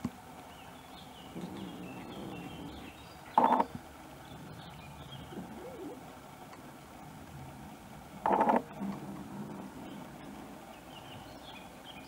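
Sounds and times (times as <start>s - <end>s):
faint birdsong: 0.3s - 7.0s, 7.7s - 12.0s.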